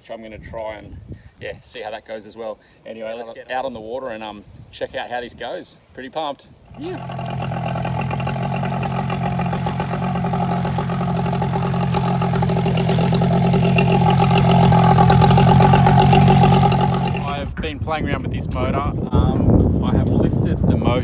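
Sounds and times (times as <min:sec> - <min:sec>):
propeller splashing water: 0:06.7 - 0:17.5
outboard motor running: 0:06.7 - 0:17.6.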